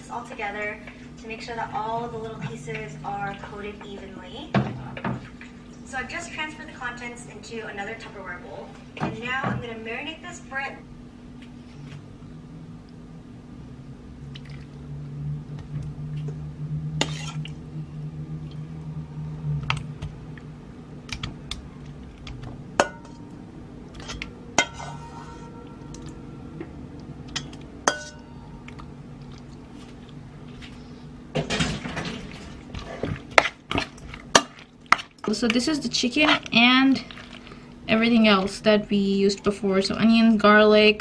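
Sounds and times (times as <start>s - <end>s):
steady low hum: 0.0s - 41.0s
utensil stirring and scraping bowl: 32.3s - 37.6s.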